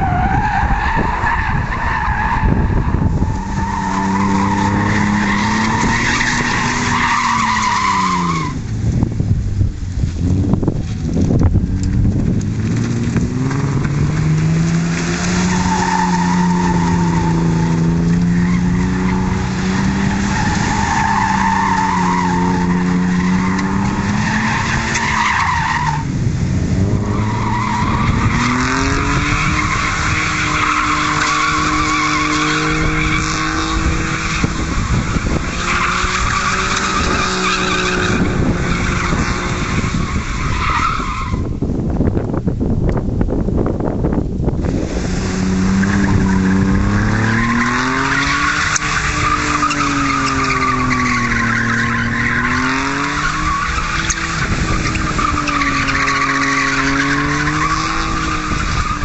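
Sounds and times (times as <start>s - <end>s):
car engine at high revs: 0.0s - 43.0s, 43.6s - 59.0s
tyres squealing: 45.4s - 59.0s.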